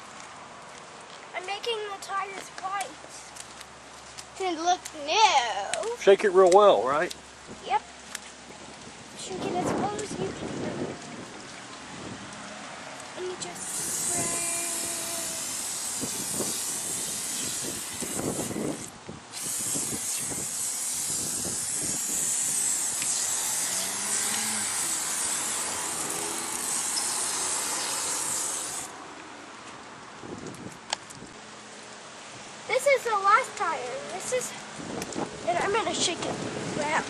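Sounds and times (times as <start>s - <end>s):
aerosol spray hissing: 13.5s - 28.9s.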